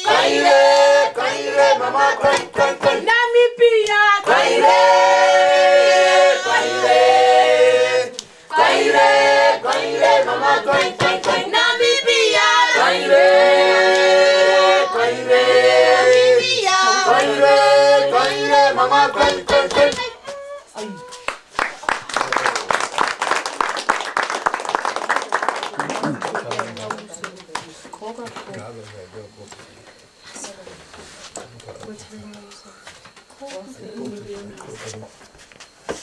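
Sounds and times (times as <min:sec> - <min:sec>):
group singing without instruments: 0:00.0 - 0:20.6.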